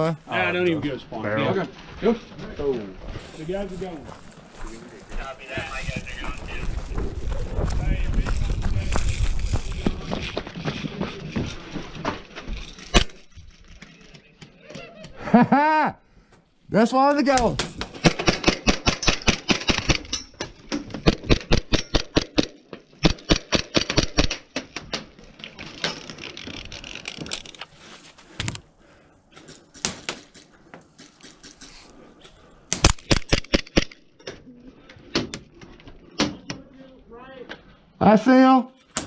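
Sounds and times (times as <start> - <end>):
airsoft guns firing bursts: 21.0 - 24.4.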